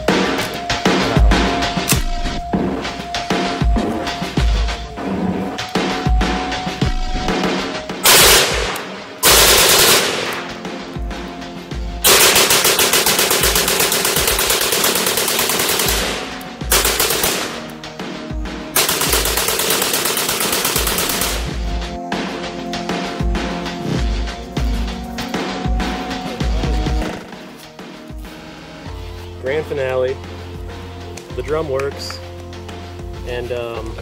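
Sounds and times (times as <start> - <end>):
music: 0.0 - 34.0
rifle rapid fire: 8.0 - 10.6, 12.0 - 17.7, 18.8 - 21.6.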